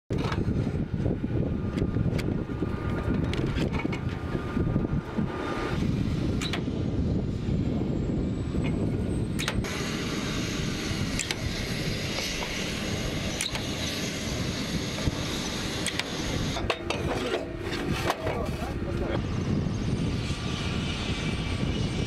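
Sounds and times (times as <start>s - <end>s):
low outdoor rumble: 0.1s - 22.0s
sharp metallic clicks and knocks: 6.4s - 6.7s, 9.4s - 9.7s, 13.4s - 13.7s.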